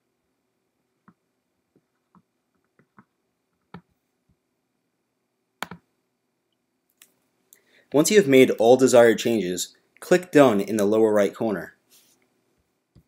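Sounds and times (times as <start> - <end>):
computer mouse clicks: 5.6 - 5.8.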